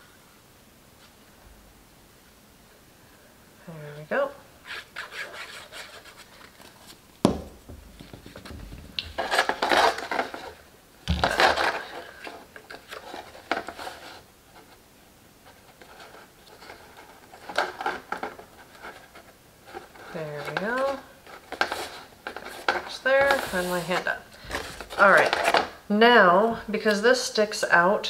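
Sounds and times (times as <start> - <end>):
stiff paper rustling and scraping: 4.6 - 7.0, 7.9 - 14.8, 15.4 - 25.8
sharp knocks: 7.2 - 9.2.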